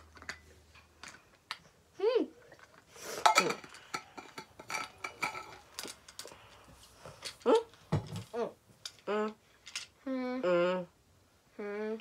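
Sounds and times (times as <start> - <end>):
metal water bottle clinking: 3.2 - 6.3
person humming closed-mouth: 10.0 - 12.0.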